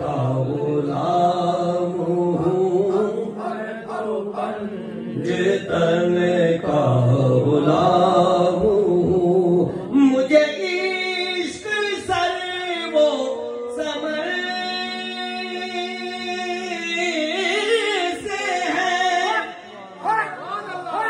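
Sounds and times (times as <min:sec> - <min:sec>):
man singing into a microphone: 0:00.0 - 0:20.2.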